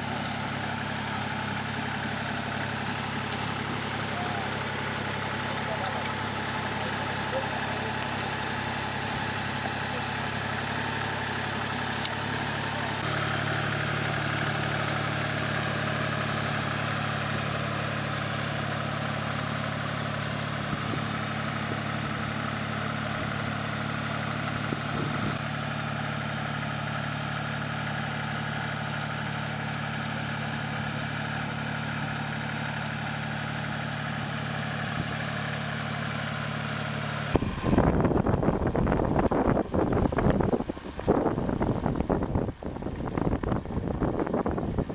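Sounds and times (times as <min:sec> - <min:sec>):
tractor diesel engine running: 0:00.0 - 0:44.9.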